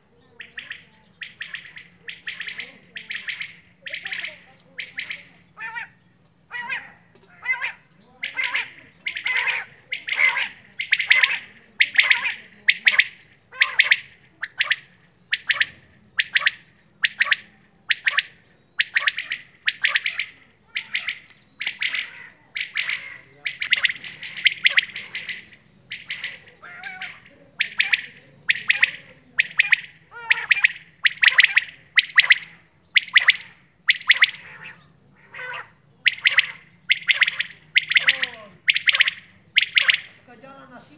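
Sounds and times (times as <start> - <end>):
quail calling: 0.0 - 40.3.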